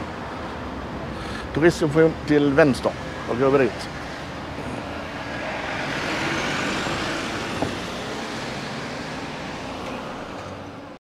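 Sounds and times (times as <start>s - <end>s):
street traffic: 0.0s - 11.0s
van driving past: 3.0s - 10.6s.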